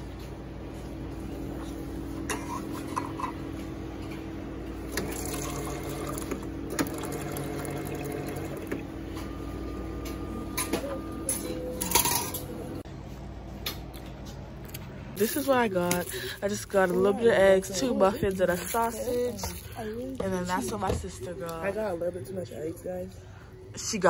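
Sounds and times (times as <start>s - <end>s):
juice dispenser motor hum: 1.4s - 12.8s
juice pouring into cup of ice: 4.9s - 8.8s.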